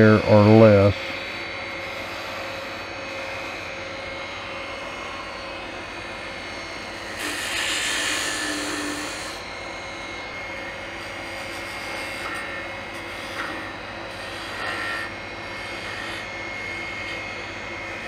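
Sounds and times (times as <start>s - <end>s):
wood lathe running: 0.0s - 18.0s
turning tool scraping wood: 7.1s - 9.4s, 11.3s - 16.3s.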